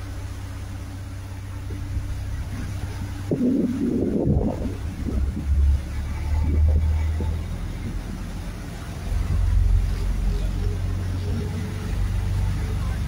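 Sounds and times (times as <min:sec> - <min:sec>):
boat engine rumble: 0:00.0 - 0:13.0
churn of boat wake: 0:00.0 - 0:13.0
wind on microphone: 0:01.6 - 0:09.9.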